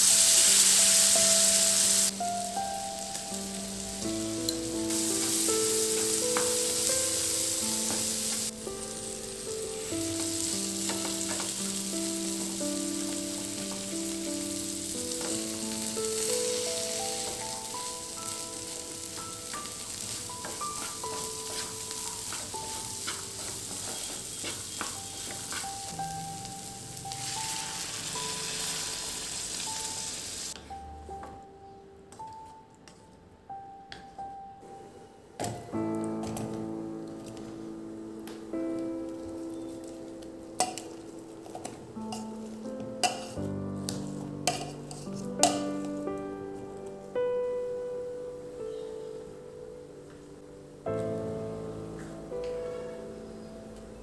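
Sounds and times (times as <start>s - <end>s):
food sizzling in hot oil: 0.0s - 30.6s, 40.6s - 43.5s, 44.4s - 45.7s
soft melodic background music: 0.0s - 54.0s.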